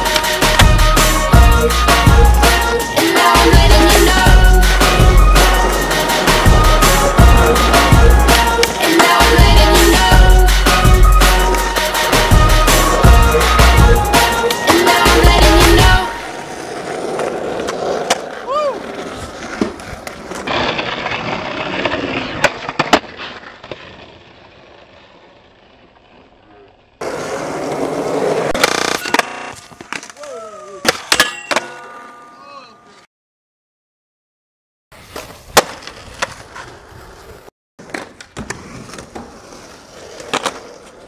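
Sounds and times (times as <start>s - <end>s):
skateboard wheels rolling on asphalt: 0.0s - 30.4s, 35.0s - 41.0s
skateboard clacks: 16.8s - 24.1s, 37.8s - 41.0s.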